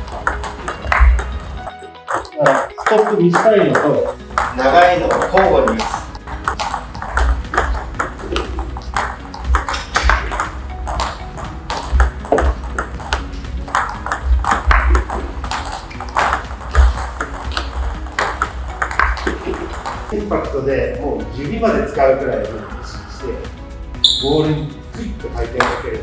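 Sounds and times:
table tennis ball clicking: 0:02.1 - 0:20.1.

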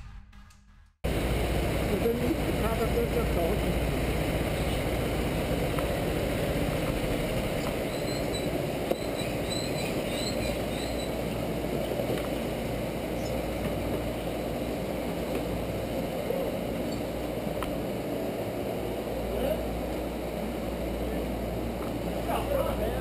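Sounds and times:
go-karts running: 0:01.1 - 0:16.8.

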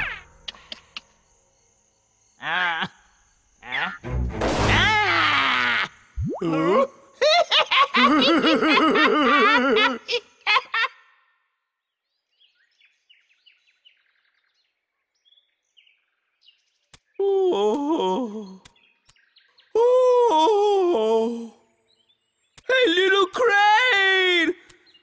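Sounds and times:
faint bird chirps: 0:00.0 - 0:04.0
loud wavering laughter: 0:04.9 - 0:11.2.

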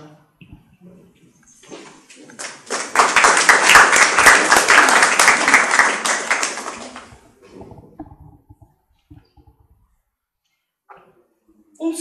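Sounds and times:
audience applauding: 0:02.3 - 0:07.4.

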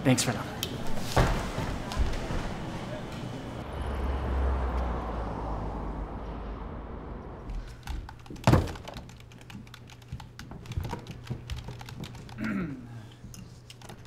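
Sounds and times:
typing on computer keyboard: 0:07.6 - 0:12.5, 0:13.6 - 0:14.0.

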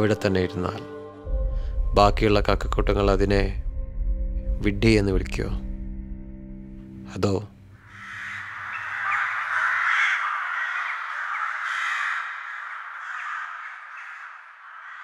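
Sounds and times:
crows cawing: 0:07.8 - 0:15.0.

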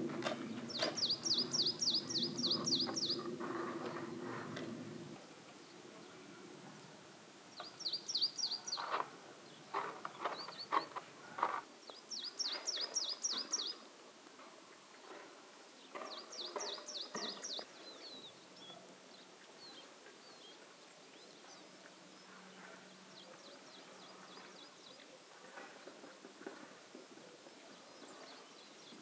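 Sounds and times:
small songbird singing: 0:00.5 - 0:03.3, 0:07.5 - 0:10.9, 0:11.8 - 0:13.8, 0:15.8 - 0:22.3.

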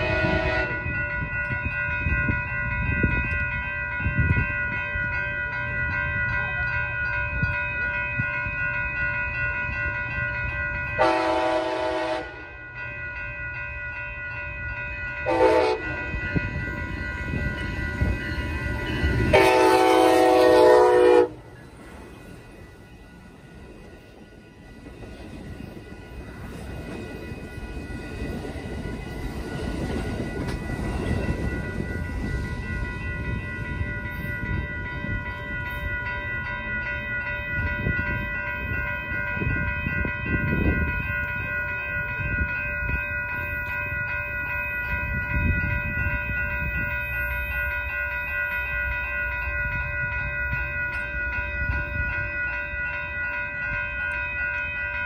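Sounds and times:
crossing warning bell ringing: 0:00.0 - 0:55.0
passenger train rolling: 0:00.0 - 0:55.0.

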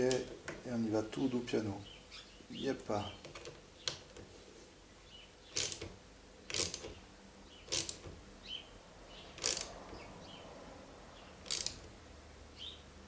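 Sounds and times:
ratchet wrench clicking: 0:05.6 - 0:05.9, 0:06.5 - 0:07.0, 0:07.7 - 0:08.1, 0:09.4 - 0:09.8, 0:11.4 - 0:11.9.

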